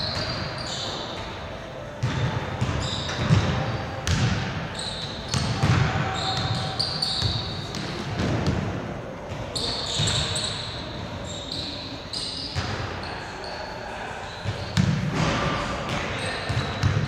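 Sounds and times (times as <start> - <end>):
shoe squeaks: 0.0 - 1.4, 2.1 - 3.9, 4.7 - 7.8, 9.5 - 14.8, 16.1 - 17.0.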